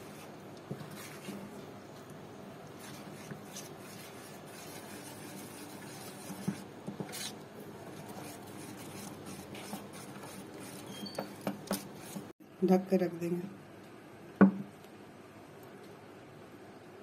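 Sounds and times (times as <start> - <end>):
spoon scraping metal bowl: 8.0 - 12.3.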